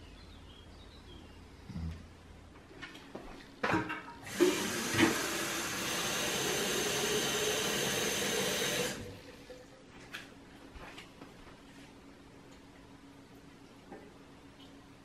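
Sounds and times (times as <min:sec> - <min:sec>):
tap water filling a can: 0:04.3 - 0:09.1.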